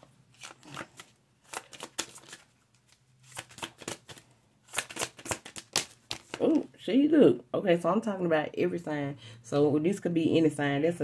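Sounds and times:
cards shuffled by hand: 0:00.3 - 0:06.7.

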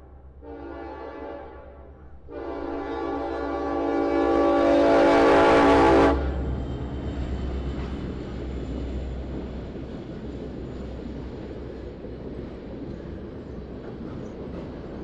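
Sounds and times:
freight train rumbling past: 0:00.0 - 0:15.0
locomotive horn: 0:00.4 - 0:06.4.

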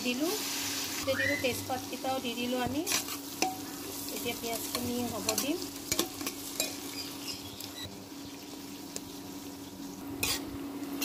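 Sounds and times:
onions sizzling in oil: 0:00.0 - 0:11.0
spatula scraping pot: 0:10.2 - 0:10.6.

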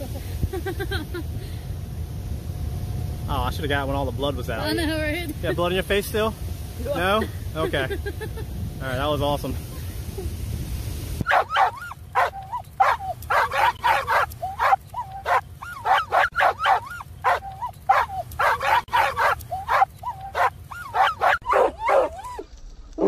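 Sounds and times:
dog yipping and barking: 0:11.2 - 0:22.4.

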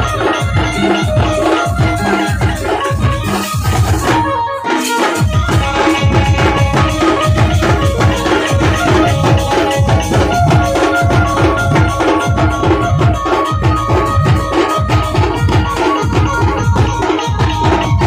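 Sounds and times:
metal hand cymbals: 0:00.0 - 0:18.0
sustained melody line: 0:00.0 - 0:18.0.

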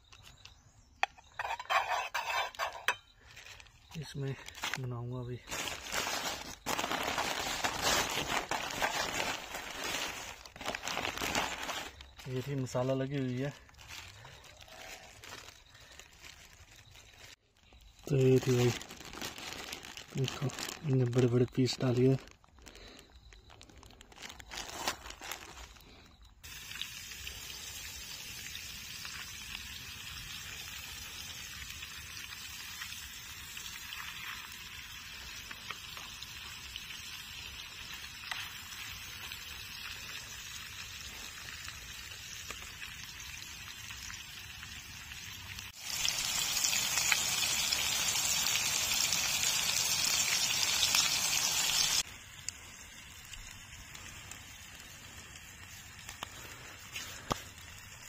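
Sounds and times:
fish sizzling in a pan: 0:26.4 - 0:58.0.

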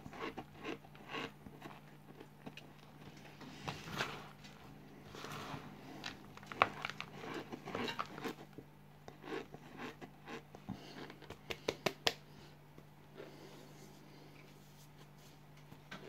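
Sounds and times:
cornstarch crunching and crackling: 0:03.7 - 0:11.8.

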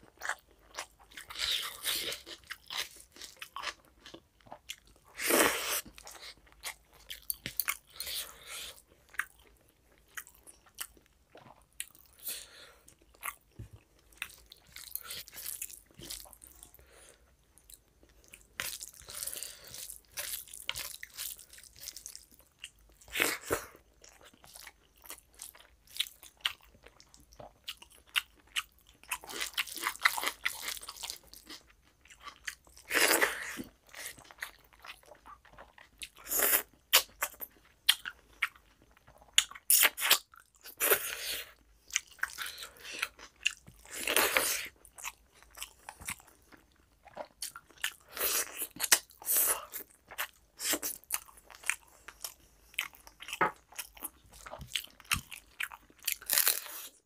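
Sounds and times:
chewing and biting food: 0:17.6 - 0:57.0.

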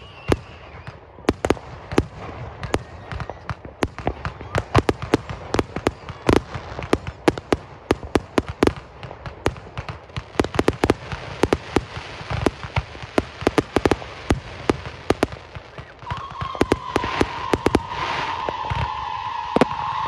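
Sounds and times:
steady whistle: 0:00.0 - 0:01.0, 0:16.0 - 0:20.0
fireworks bangs and pops: 0:00.0 - 0:20.0
crackling hiss: 0:04.7 - 0:20.0.

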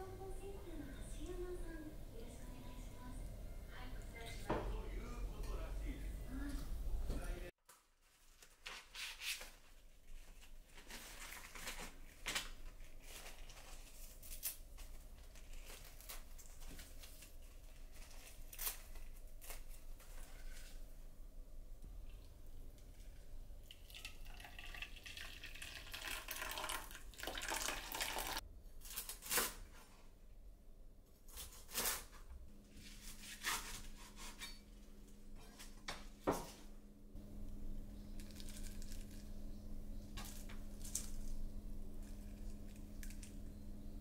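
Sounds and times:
appliance humming: 0:00.0 - 0:07.5, 0:32.2 - 0:44.0.

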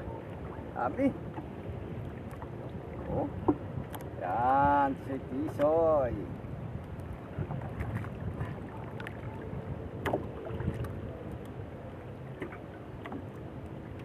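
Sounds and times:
light knocks and clicks on boat: 0:00.0 - 0:14.0
wind on microphone: 0:01.7 - 0:11.7
water slapping against boat hull: 0:06.8 - 0:11.5.

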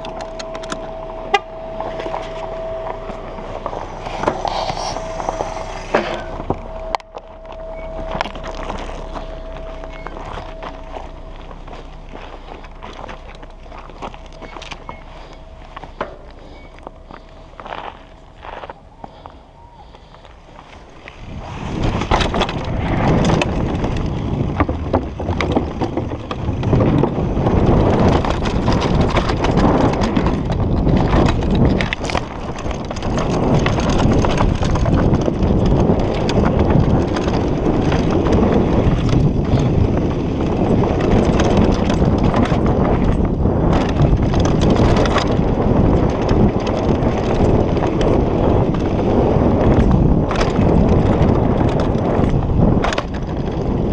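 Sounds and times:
tyres rushing on dirt: 0:00.0 - 0:53.9
wind buffeting microphone: 0:00.0 - 0:53.9
bike knocks and rattles: 0:21.0 - 0:53.9.

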